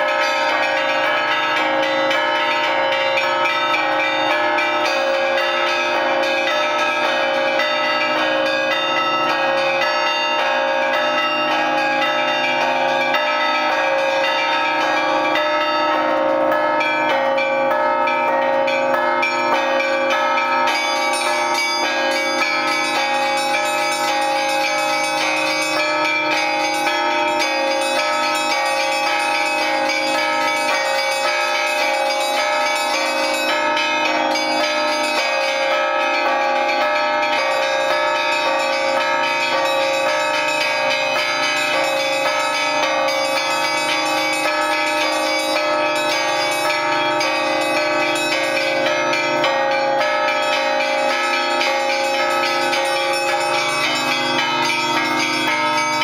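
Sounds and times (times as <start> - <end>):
church bells pealing: 0.0 - 56.0.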